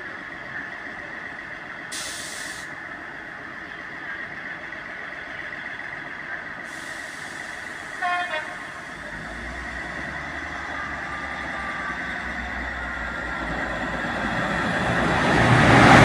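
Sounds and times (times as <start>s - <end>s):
train engines idling: 0.0s - 16.0s
air hiss: 1.9s - 2.7s, 6.6s - 9.1s.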